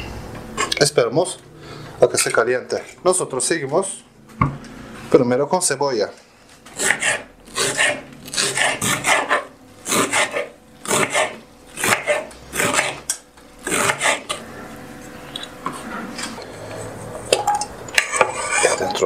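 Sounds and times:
knife slicing onion on board: 6.8 - 13.1, 13.7 - 14.4.

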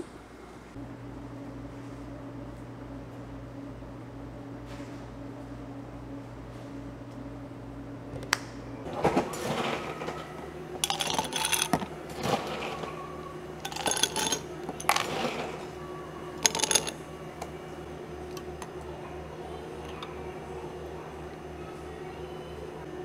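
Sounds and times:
low appliance hum: 0.0 - 23.0
ice cubes clinking in glasses: 10.8 - 12.7, 13.6 - 15.5, 16.4 - 17.0.

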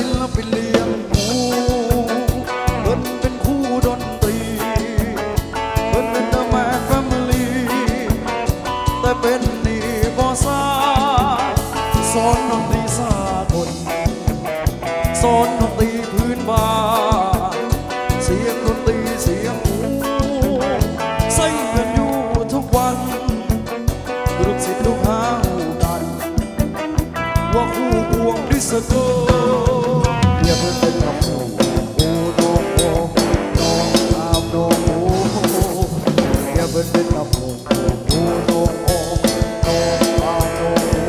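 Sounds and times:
drum beat: 24.3 - 41.0.

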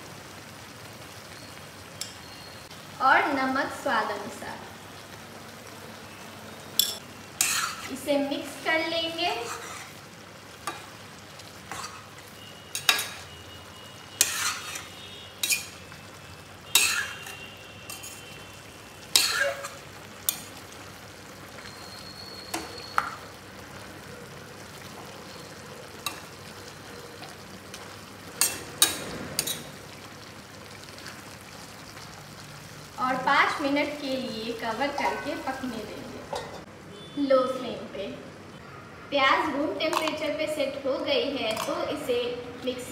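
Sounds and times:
meat sizzling: 0.0 - 36.6
spoon clanking against pot: 6.8 - 7.9, 12.7 - 13.2, 14.2 - 15.8, 28.4 - 29.7, 36.3 - 36.7, 39.9 - 40.2.

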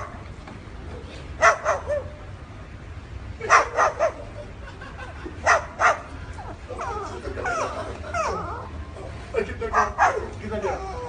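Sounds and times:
cockatoo barking like a dog: 1.4 - 2.2, 3.4 - 4.4, 5.4 - 6.1, 9.7 - 11.0.

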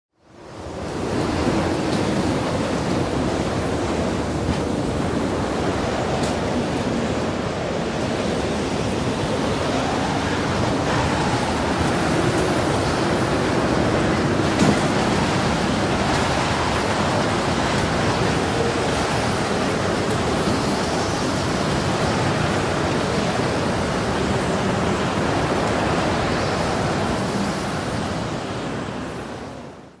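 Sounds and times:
rushing wind: 0.1 - 30.0.

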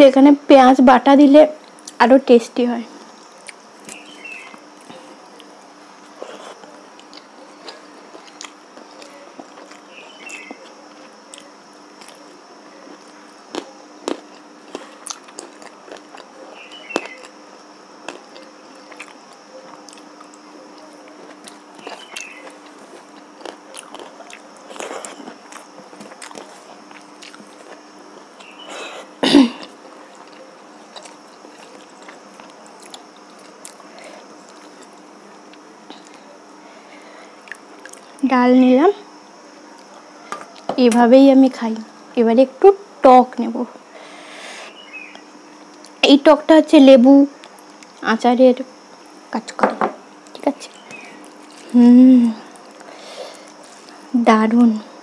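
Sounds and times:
faint hum: 0.0 - 55.0
chewing and mouth clicks: 6.1 - 17.4, 18.1 - 28.6, 30.0 - 36.2, 37.4 - 38.2.

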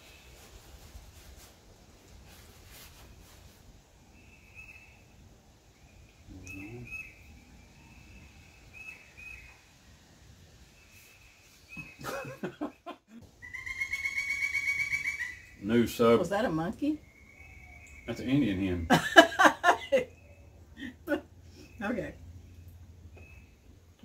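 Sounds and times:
faint bird chirps: 2.4 - 10.0, 10.6 - 16.0, 16.6 - 18.9, 19.9 - 24.0
woodpecker calling: 6.0 - 9.6, 13.4 - 18.8.

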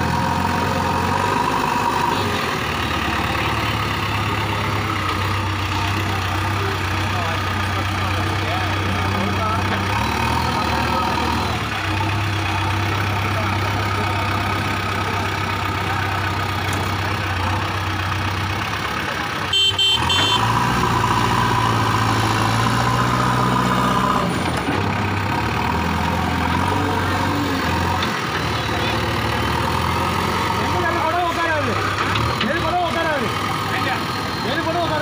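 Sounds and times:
diesel engine running: 0.0 - 35.0
short horn toot: 19.5 - 20.5.

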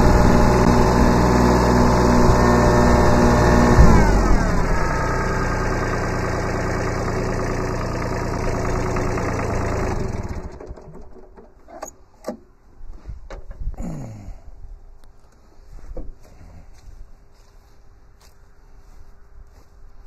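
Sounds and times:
diesel engine idling: 0.0 - 11.1
sharp clicks and knocks: 13.2 - 13.6.

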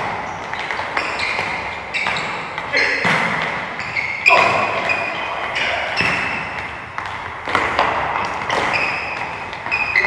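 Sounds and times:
soccer balls thudding and bouncing: 0.0 - 10.0
short high squeaks: 3.8 - 5.3, 8.6 - 10.0.

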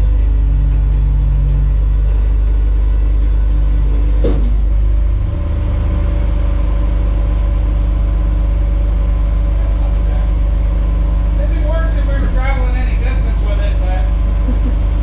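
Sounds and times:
tow truck engine humming: 0.0 - 15.0.

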